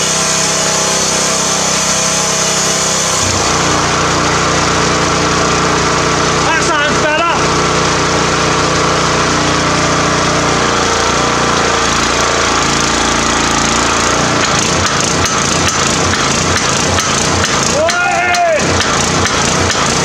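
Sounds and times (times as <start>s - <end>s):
petrol engine running: 0.0s - 20.0s
power hammer ram clattering: 10.4s - 20.0s.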